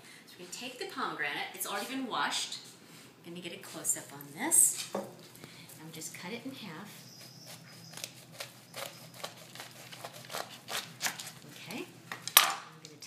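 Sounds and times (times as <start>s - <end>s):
knife cutting through rind: 7.2s - 11.4s.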